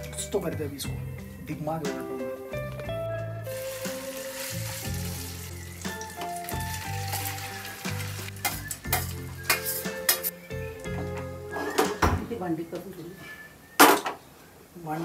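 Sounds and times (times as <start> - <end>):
omelette sizzling in oil: 3.5 - 10.2.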